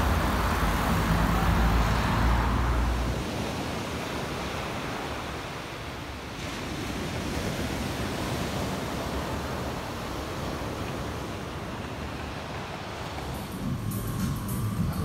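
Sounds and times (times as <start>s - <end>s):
road traffic rumbling: 0.0s - 5.4s, 11.1s - 15.0s.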